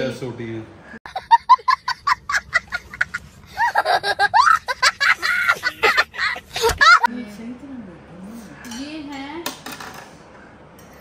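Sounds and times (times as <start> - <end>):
high-pitched giggling laughter: 1.1 - 7.1.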